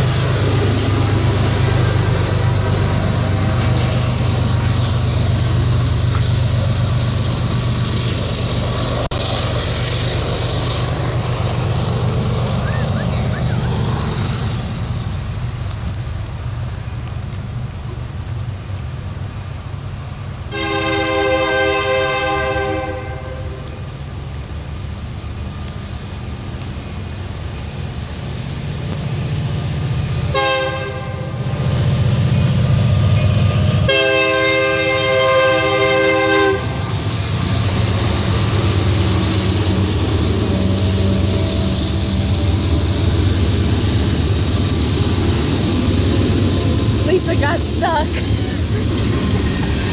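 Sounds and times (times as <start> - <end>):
low engine rumble: 0.0 - 49.9
locomotive horn: 20.5 - 23.8, 30.3 - 31.5, 33.2 - 37.0.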